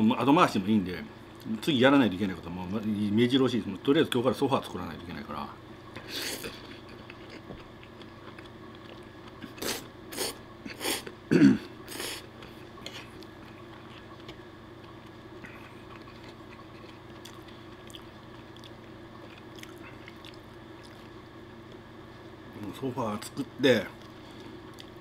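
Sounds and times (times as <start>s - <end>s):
man slurping and chewing: 9.4s - 11.1s.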